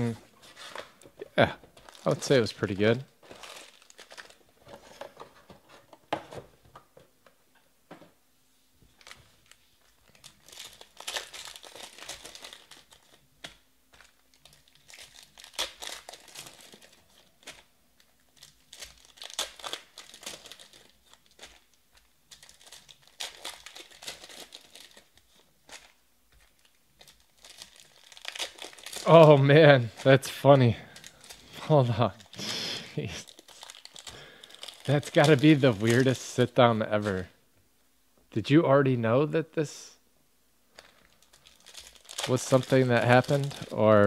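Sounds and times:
foil wrappers crinkling and tearing: 1.8 - 4.7, 9.0 - 37.3, 40.7 - 44.0.

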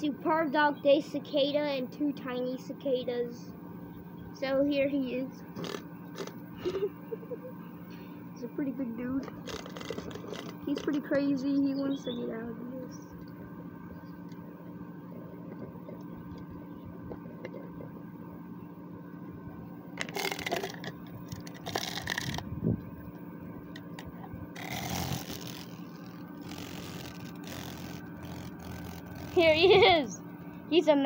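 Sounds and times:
steady low hum: 0.0 - 31.0
insect scrabbling against plastic: 5.5 - 6.4, 9.2 - 11.2, 20.0 - 22.5, 23.8 - 29.9.

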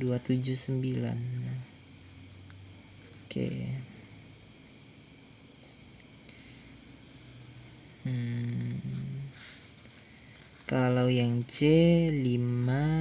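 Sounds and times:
insect trill: 0.0 - 13.0
man talking: 3.3 - 3.9.

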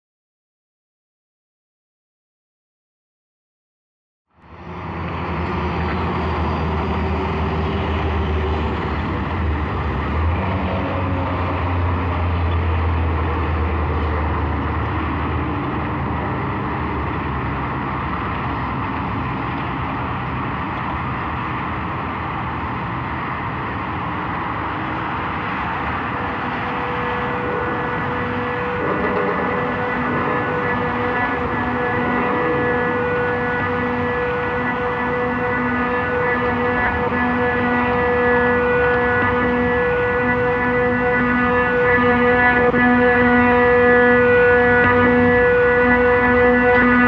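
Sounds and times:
traffic and street noise: 4.3 - 47.0
deep rumble: 24.1 - 35.3.

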